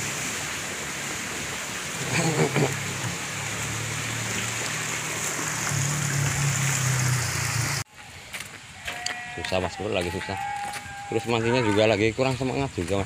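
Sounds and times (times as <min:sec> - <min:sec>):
water pouring into pond: 0:00.0 - 0:07.9.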